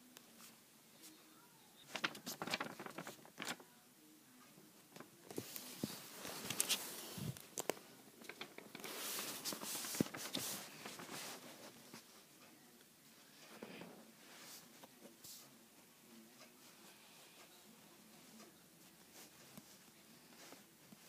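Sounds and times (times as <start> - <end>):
paper rustling: 1.8 - 3.6, 5.0 - 12.1.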